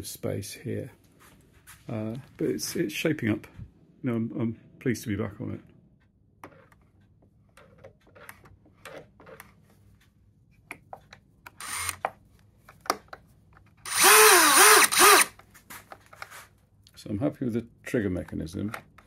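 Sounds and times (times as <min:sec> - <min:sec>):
cordless drill motor whine: 0:11.6 - 0:12.0, 0:13.9 - 0:15.4.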